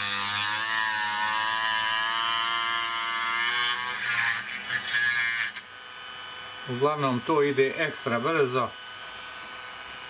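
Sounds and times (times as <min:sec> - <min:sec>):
rotary tool cutting plastic: 0:00.0 - 0:05.7.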